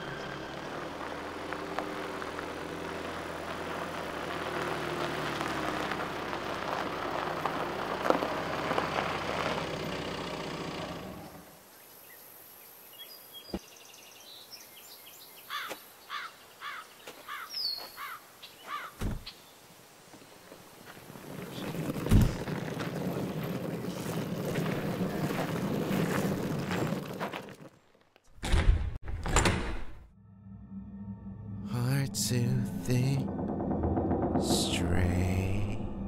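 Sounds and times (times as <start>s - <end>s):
car rolling over gravel: 0.0s - 11.4s, 20.2s - 28.2s
car engine running: 0.0s - 11.5s, 21.0s - 27.4s
birds chirping: 11.1s - 27.0s.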